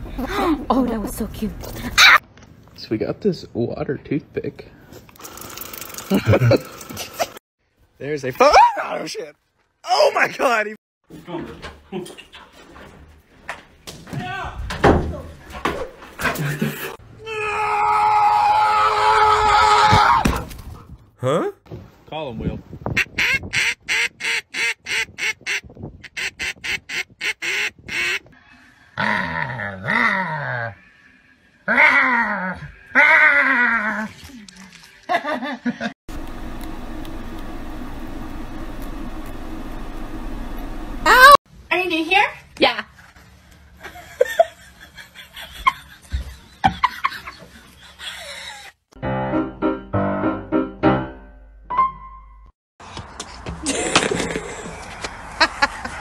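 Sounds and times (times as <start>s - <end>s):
duck call quacking: 23.0s - 28.2s
piano music: 49.0s - 52.5s.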